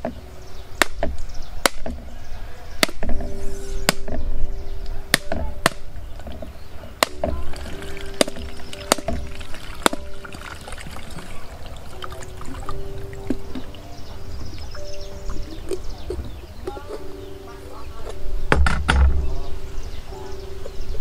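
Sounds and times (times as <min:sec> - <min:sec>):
background music with sustained tones: 0:00.0 - 0:21.0
cleaver cracking coconut: 0:00.8 - 0:02.0, 0:02.8 - 0:03.2, 0:05.1 - 0:06.4, 0:07.0 - 0:10.3.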